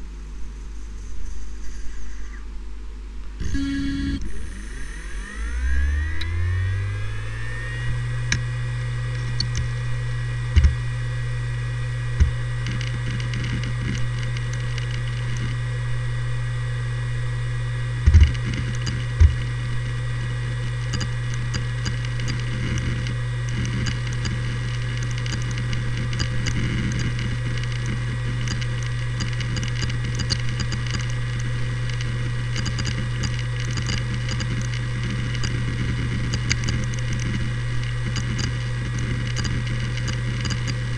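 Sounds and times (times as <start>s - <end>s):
hard drive whine and hum: 0.0s - 40.9s
hard drive head clicks: 10.5s - 10.8s.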